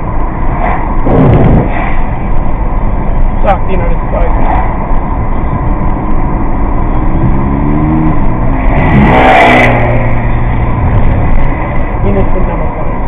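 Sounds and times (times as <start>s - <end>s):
road noise inside car: 0.0s - 13.0s.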